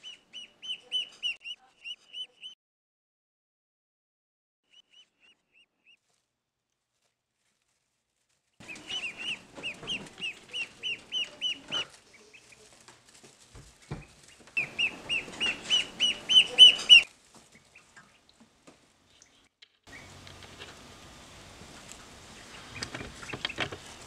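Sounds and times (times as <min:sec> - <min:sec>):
duckling peeping: 0:00.0 - 0:02.6, 0:04.7 - 0:06.0, 0:08.6 - 0:12.7, 0:13.9 - 0:18.3, 0:19.1 - 0:20.5, 0:21.6 - 0:24.0.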